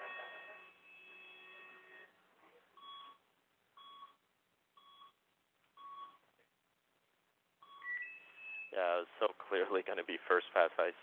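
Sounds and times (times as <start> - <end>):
short electronic beeps: 7.6 - 8.8.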